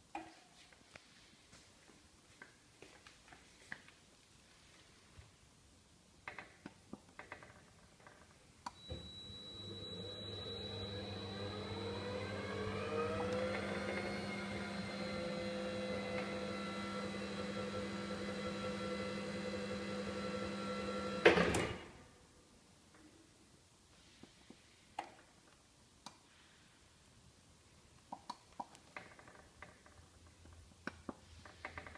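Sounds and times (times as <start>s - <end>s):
electric motor whining: 8.9s - 21.1s.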